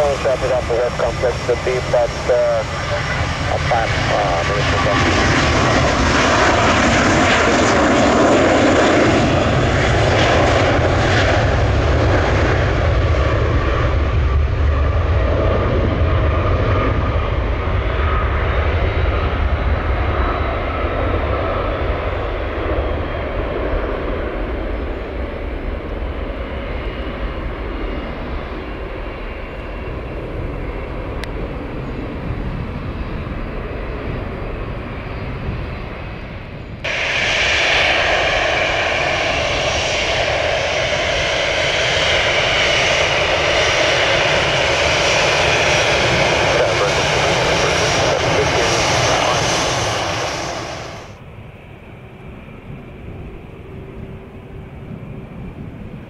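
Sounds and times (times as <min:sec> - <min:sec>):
faint engine whine: 0:00.0 - 0:56.0
jet engines rumbling: 0:00.0 - 0:56.0.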